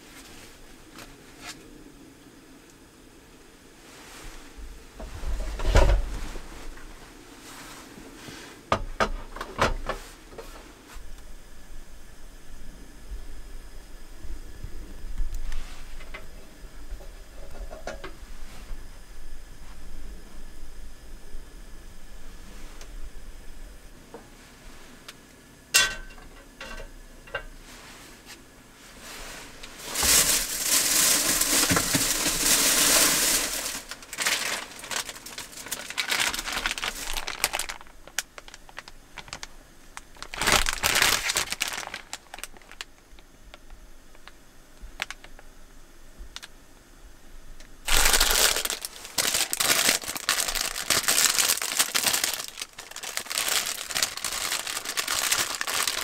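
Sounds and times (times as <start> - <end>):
plastic packaging crinkling: 29.8 - 44.4, 45.0 - 45.4, 47.8 - 56.0.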